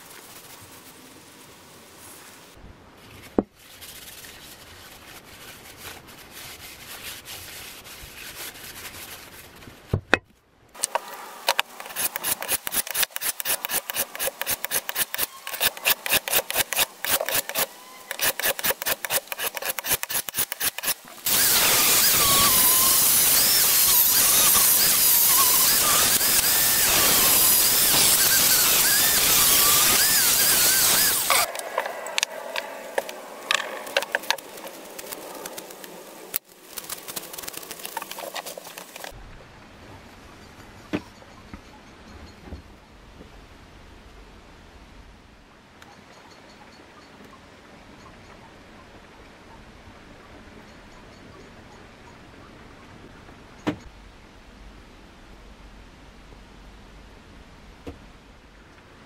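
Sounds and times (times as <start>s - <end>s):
towel rubbing a steel blade: 3.6s - 9.6s, 11.8s - 31.5s
power tool whining: 11.5s - 31.6s
blade stroked on sharpening stone: 11.8s - 31.5s.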